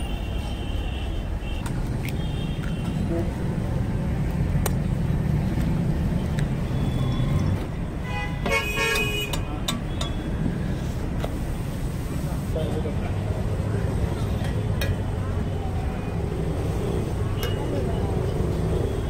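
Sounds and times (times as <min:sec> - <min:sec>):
street traffic rumble: 0:00.0 - 0:19.0
vehicle horn honking: 0:08.0 - 0:09.4.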